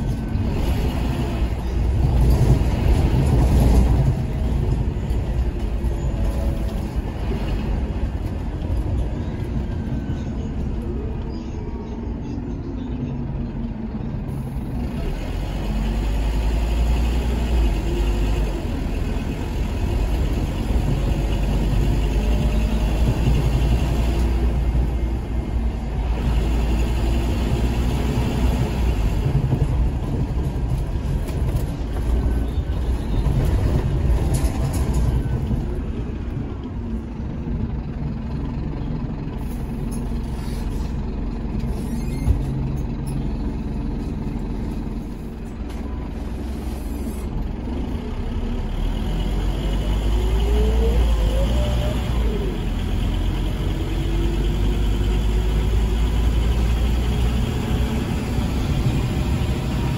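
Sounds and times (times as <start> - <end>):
bus engine rumbling: 0.0 - 59.9.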